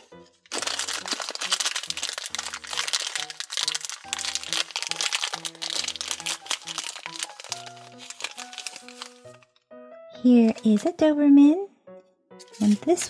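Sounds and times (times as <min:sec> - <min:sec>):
background music: 0:00.0 - 0:13.0
plastic bag crinkling: 0:00.4 - 0:09.5.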